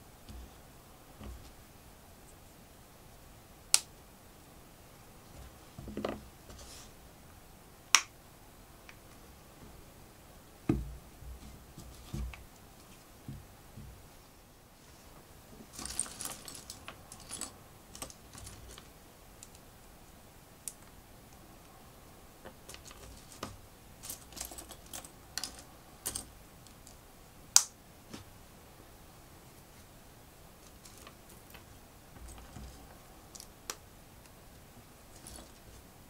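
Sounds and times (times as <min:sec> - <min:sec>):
loose plastic pieces rattling: 0:15.7 - 0:19.6.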